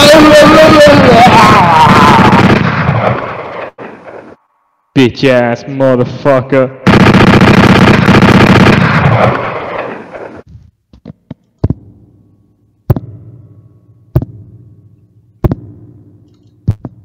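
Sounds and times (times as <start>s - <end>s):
loud distorted blast: 0.0s - 4.3s.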